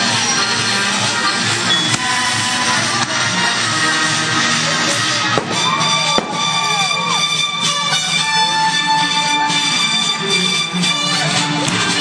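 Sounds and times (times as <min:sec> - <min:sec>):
loud music: 0:00.0 - 0:12.0
firework bang: 0:05.3 - 0:06.9
falling whistle-like tones: 0:05.4 - 0:09.7.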